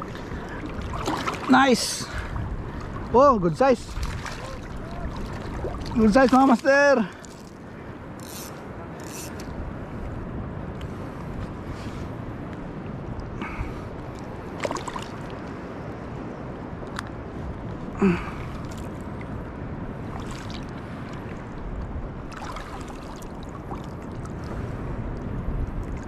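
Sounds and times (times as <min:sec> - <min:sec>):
sea water lapping: 0:00.0 - 0:08.2, 0:13.4 - 0:15.8, 0:20.0 - 0:25.0
faint small clicks: 0:16.9 - 0:17.1.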